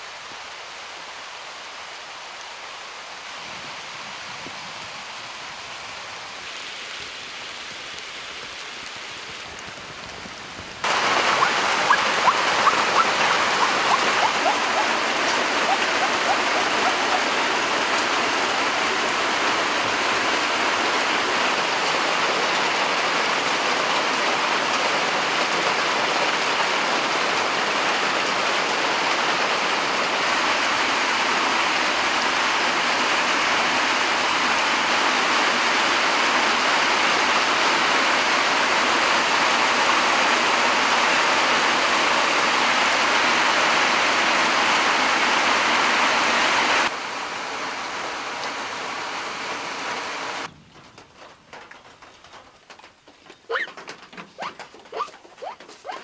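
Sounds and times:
heavy rain on foliage: 0.0s - 56.0s.

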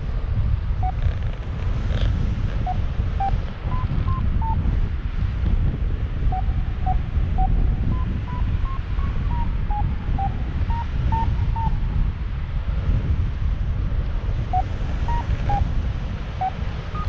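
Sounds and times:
wind noise on microphone: 0.0s - 17.0s
variometer beeping: 0.8s - 1.2s, 2.5s - 4.8s, 6.2s - 12.0s, 14.5s - 15.7s, 16.4s - 17.0s.

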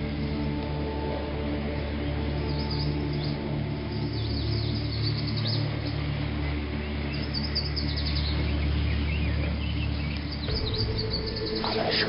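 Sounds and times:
low background music drone: 0.0s - 12.0s
songbirds chirping: 0.0s - 12.0s.

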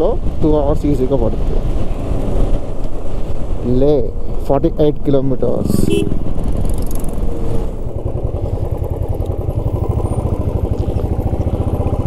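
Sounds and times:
motorcycle engine running: 5.5s - 12.0s.

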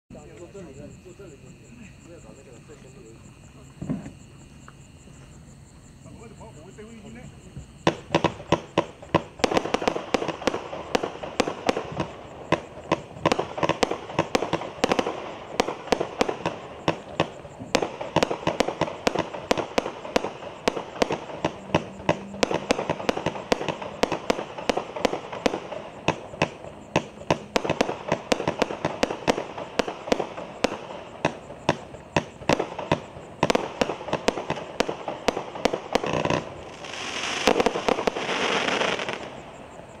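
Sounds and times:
firework shots crackling: 7.7s - 40.0s
heavy firework shot: 7.8s - 39.8s.

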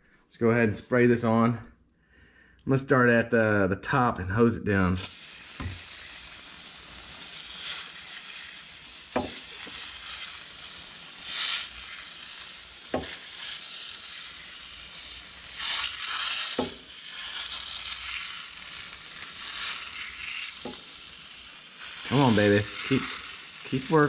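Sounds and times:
aerosol can spraying: 5.0s - 24.0s.

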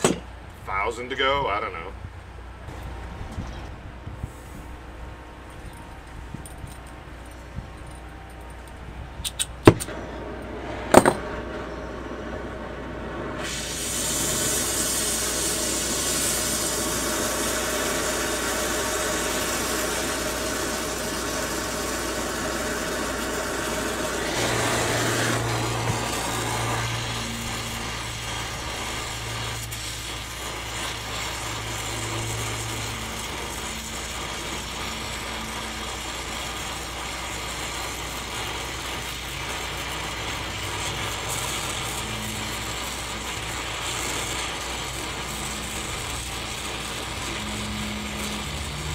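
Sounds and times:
low hum: 1.9s - 13.5s
welding arc hissing: 13.3s - 48.9s.

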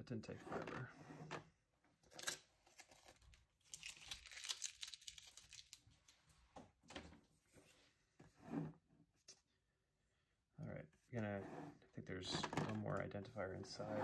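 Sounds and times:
packing tape tearing: 2.2s - 5.8s
packaging crinkling: 2.7s - 6.2s.

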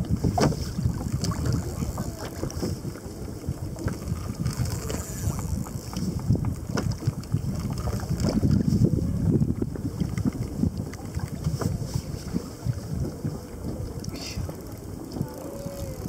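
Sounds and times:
water sloshing around kayak: 0.0s - 16.0s
wind buffeting microphone: 0.0s - 16.0s
small ticks: 4.5s - 6.0s.

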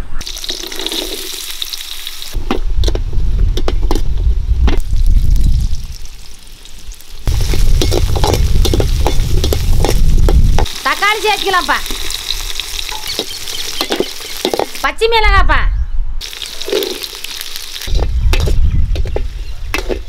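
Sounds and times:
onions sizzling in hot oil: 0.2s - 2.4s, 4.8s - 14.9s, 16.2s - 20.0s.

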